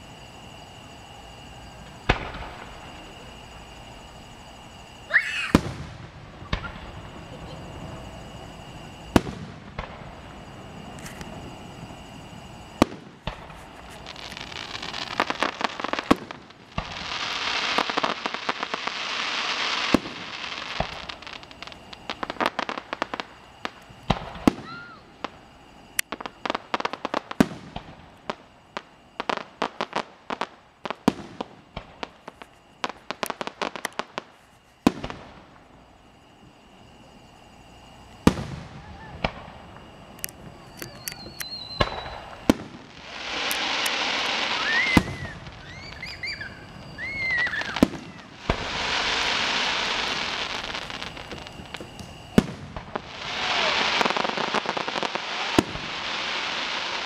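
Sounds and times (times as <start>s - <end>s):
firework shells bursting: 0.0s - 36.4s, 37.8s - 57.0s
firework crackle: 0.0s - 57.0s
sharp bangs and pops: 2.0s - 3.0s, 5.3s - 7.0s, 9.1s - 10.2s, 38.2s - 46.5s.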